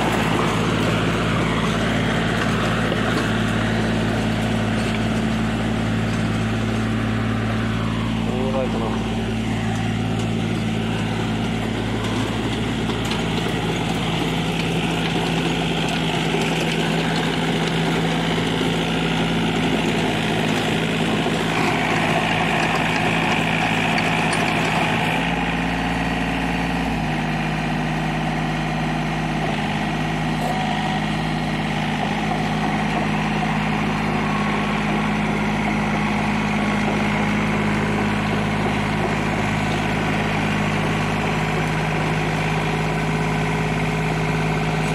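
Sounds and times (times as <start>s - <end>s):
rotavator tilling soil: 0.0s - 44.9s
tractor diesel engine under load: 0.0s - 44.9s.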